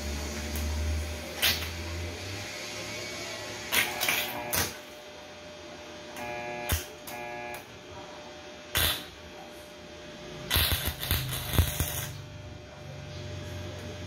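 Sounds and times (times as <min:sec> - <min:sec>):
welding arc crackling: 0:00.0 - 0:02.2, 0:03.4 - 0:04.9, 0:06.2 - 0:07.6, 0:08.7 - 0:09.2, 0:10.5 - 0:12.3
short buzzing tone: 0:06.2 - 0:07.6.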